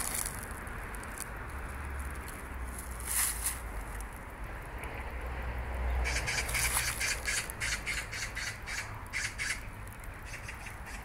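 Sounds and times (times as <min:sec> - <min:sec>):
bird's harsh rasping call: 0:06.0 - 0:11.0.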